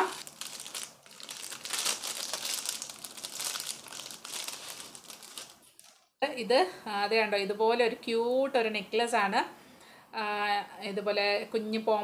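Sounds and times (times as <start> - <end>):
plastic bag crinkling: 0.0 - 6.2.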